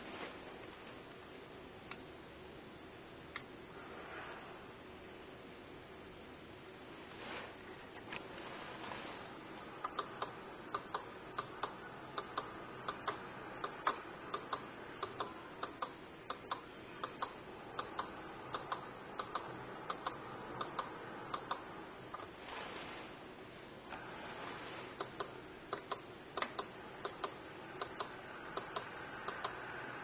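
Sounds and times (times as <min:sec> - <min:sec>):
faint steady hiss: 0:00.0 - 0:30.0
sharp clicking in pairs: 0:09.8 - 0:21.7, 0:25.0 - 0:29.6.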